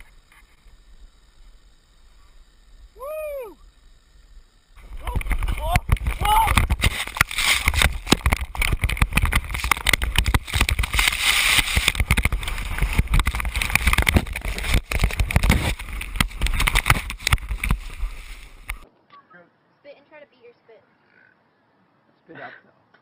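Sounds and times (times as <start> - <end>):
skis knocking and scraping snow: 4.8 - 18.8.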